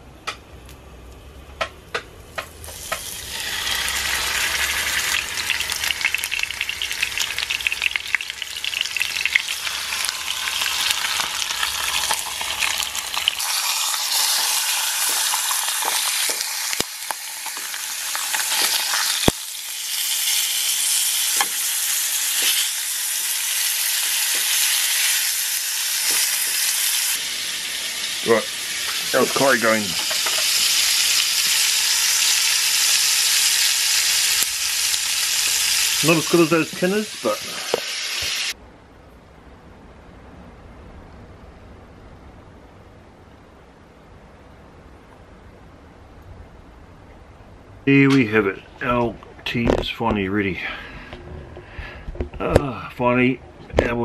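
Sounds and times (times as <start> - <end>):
meat sizzling in frying pan: 2.6 - 38.6.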